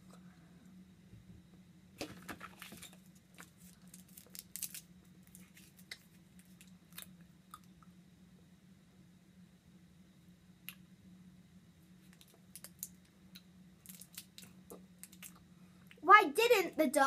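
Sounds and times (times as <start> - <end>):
candy wrapper crackling: 3.4 - 7.1, 12.1 - 13.0, 13.8 - 15.4.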